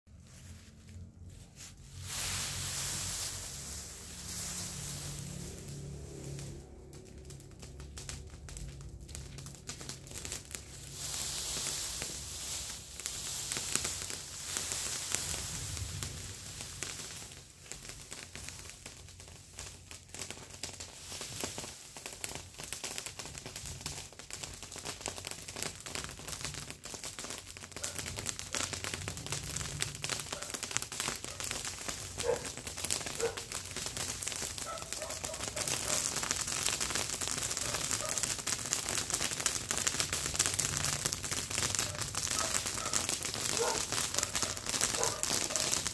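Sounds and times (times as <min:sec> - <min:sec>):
dry vegetation rustling: 0:00.1 - 0:18.7, 0:31.3 - 0:36.1, 0:41.8 - 0:45.9
brush fire crackling: 0:00.1 - 0:45.9.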